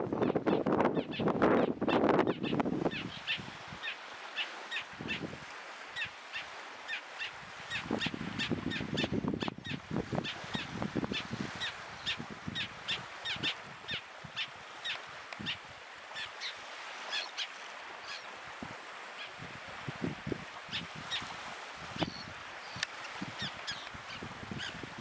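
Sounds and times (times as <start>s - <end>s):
wind rumble on microphone: 0.0s - 3.8s, 7.4s - 14.4s, 18.4s - 25.0s
bird calling: 0.5s - 5.2s, 6.0s - 18.4s, 22.0s - 24.8s.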